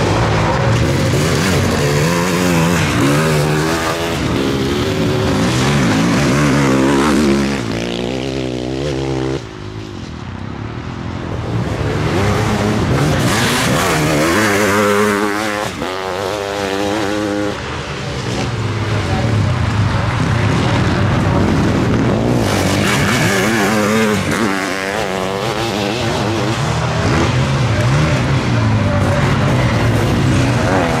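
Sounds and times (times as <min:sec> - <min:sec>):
motorcycle engines revving: 0:00.0 - 0:31.0.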